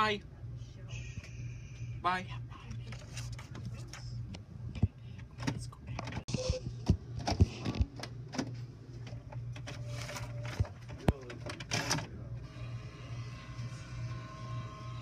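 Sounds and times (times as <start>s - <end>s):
printer humming: 6.2s - 15.0s.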